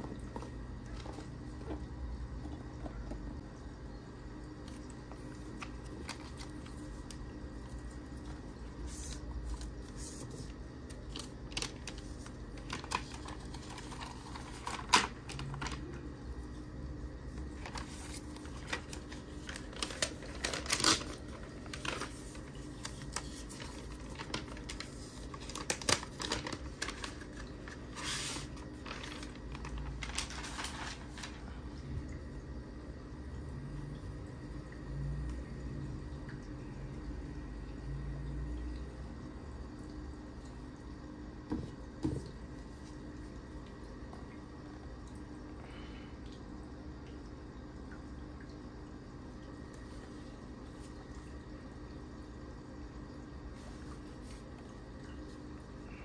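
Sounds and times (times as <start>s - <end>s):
paper wrap rustling: 4.7s - 16.1s, 17.3s - 31.7s.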